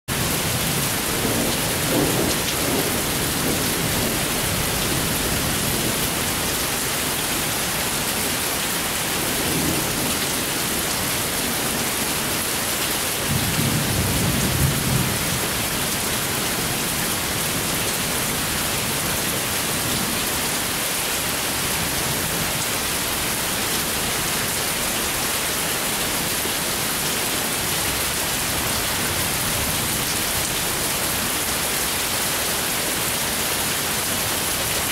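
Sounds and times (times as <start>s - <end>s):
steady rain hissing: 0.1s - 34.9s
thunder rumbling: 0.2s - 6.5s.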